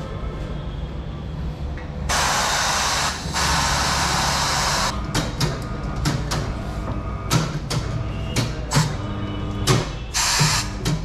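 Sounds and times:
compressed air hissing: 2.1s - 4.9s, 10.1s - 10.7s.

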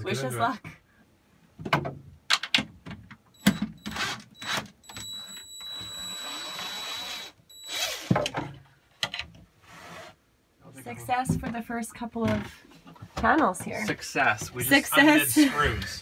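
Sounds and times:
cordless drill motor: 3.9s - 8.1s.

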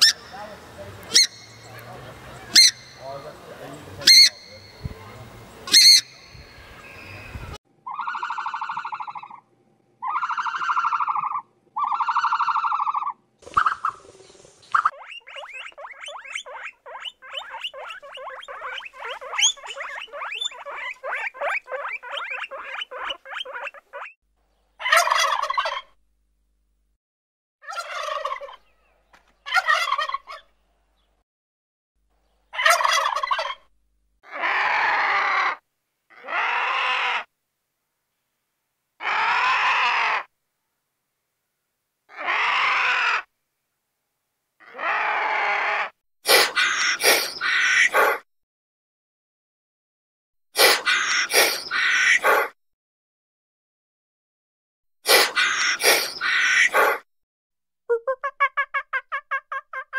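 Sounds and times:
animal calls: 0.0s - 4.9s, 7.8s - 9.4s, 10.0s - 14.1s, 14.7s - 24.2s, 34.2s - 37.3s, 42.1s - 43.3s, 44.6s - 48.2s, 50.6s - 52.6s, 55.1s - 57.0s.

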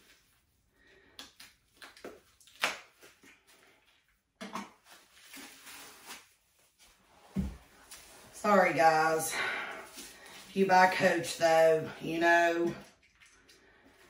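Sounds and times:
paper rustling and crinkling: 4.8s - 8.3s.

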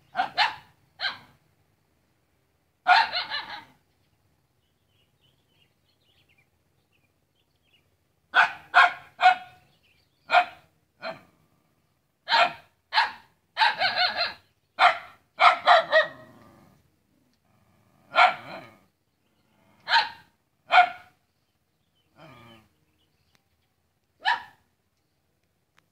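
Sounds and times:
dog barking: 0.1s - 1.4s, 2.8s - 3.8s, 8.3s - 9.6s, 10.3s - 11.3s, 12.3s - 16.3s, 18.1s - 18.8s, 19.8s - 21.2s, 24.2s - 24.6s.

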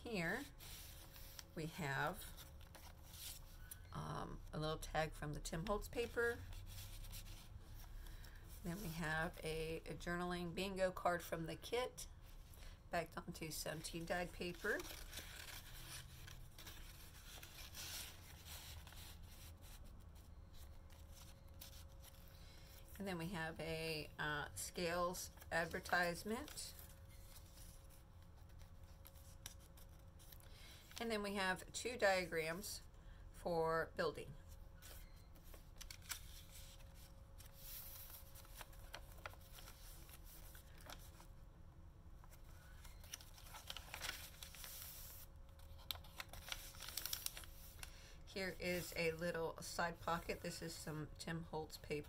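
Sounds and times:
paper pages rustling: 0.5s - 1.6s, 2.2s - 3.8s, 14.2s - 23.0s, 25.3s - 31.0s, 34.8s - 41.3s, 42.2s - 47.9s
paper rustling and sliding: 34.8s - 41.3s, 42.3s - 47.9s.

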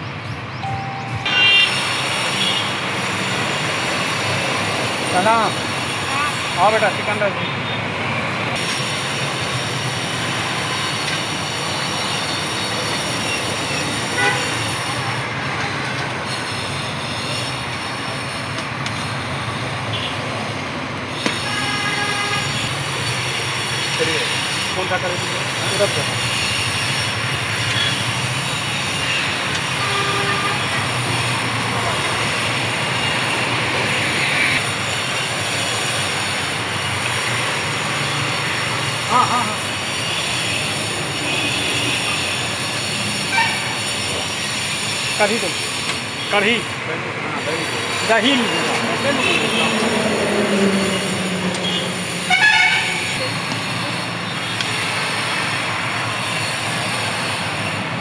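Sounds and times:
road traffic din: 0.0s - 58.0s
vehicle horn toot: 0.7s - 2.8s, 14.2s - 14.6s, 29.7s - 30.8s, 51.6s - 53.2s.

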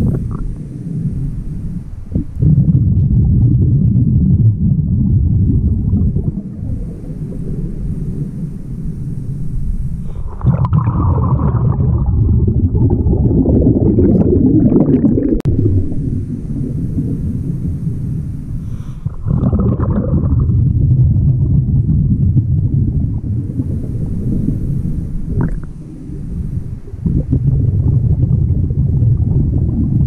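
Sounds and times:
loud low bubbling exhalation: 2.1s - 7.4s, 10.1s - 16.7s, 18.7s - 24.6s, 25.2s - 30.0s
faint hiss of inhalation: 9.8s - 10.4s, 18.4s - 19.3s.

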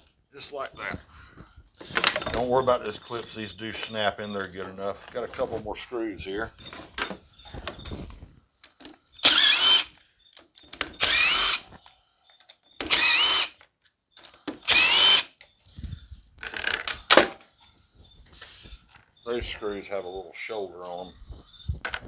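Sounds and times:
cordless driver motor whine: 9.2s - 10.0s, 10.9s - 11.7s, 12.9s - 13.6s, 14.6s - 15.3s.

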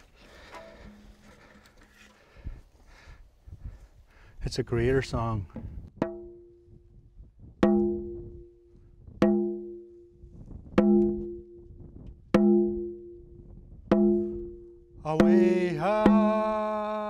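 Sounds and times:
hand drum beats: 6.0s - 6.6s, 7.6s - 8.5s, 9.2s - 9.9s, 10.8s - 11.6s, 12.4s - 13.2s, 13.9s - 16.7s.

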